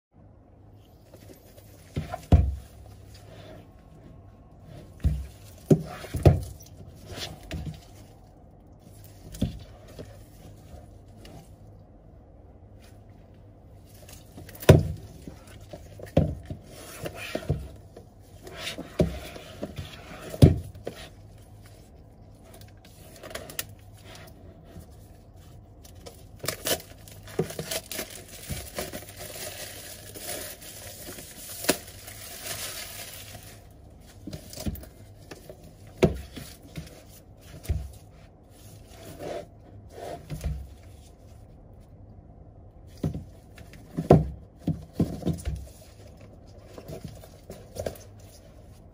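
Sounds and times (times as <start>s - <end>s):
plastic shrink-wrap crinkling: 26.0s - 34.6s.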